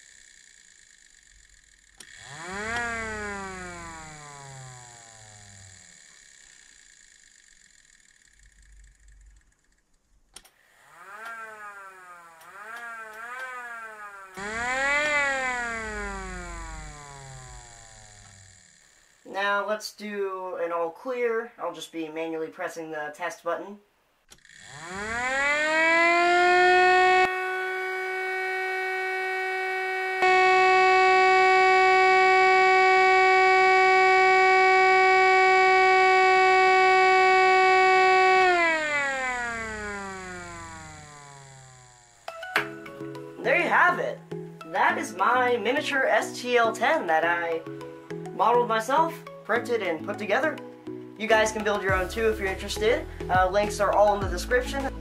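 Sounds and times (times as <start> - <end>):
rotor siren growls: 0.0 - 9.7, 10.7 - 19.3, 24.4 - 42.3
click: 9.4 - 10.6.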